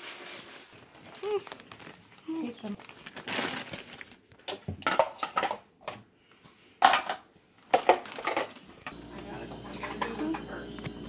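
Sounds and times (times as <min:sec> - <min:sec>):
plastic toy kitchenware clattering: 0:04.4 - 0:06.0, 0:06.8 - 0:09.0.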